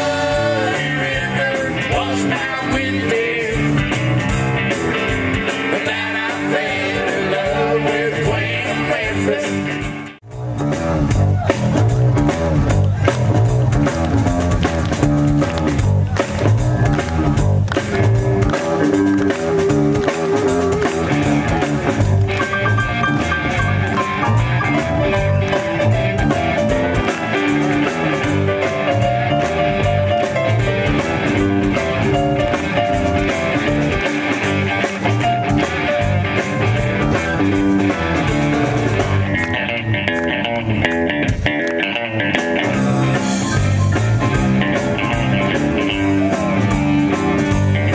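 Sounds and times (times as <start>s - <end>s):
country-rock band playing: 0.0s - 47.9s
electric guitar melody: 12.7s - 47.9s.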